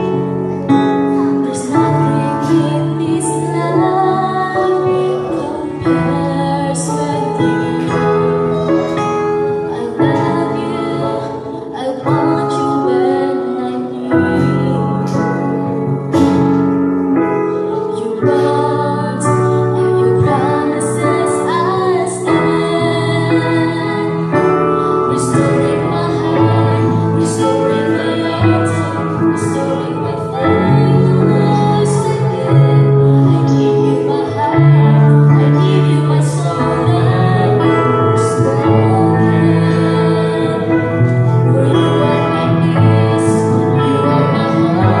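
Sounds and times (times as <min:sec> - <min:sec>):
music accompaniment: 0:00.0 - 0:45.0
woman singing: 0:00.0 - 0:45.0.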